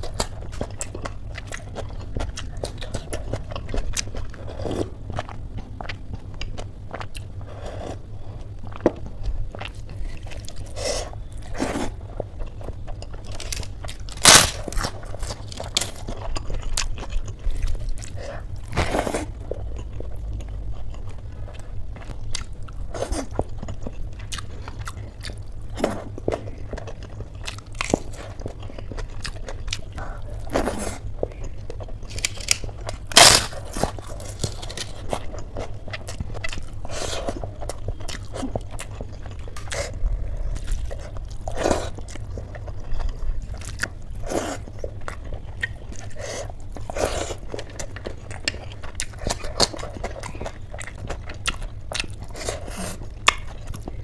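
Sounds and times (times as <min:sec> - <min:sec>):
person chewing and crunching: 0:00.0 - 0:54.0
steady low hum: 0:00.0 - 0:54.0
sharp crunches: 0:13.3 - 0:16.0, 0:32.1 - 0:35.2.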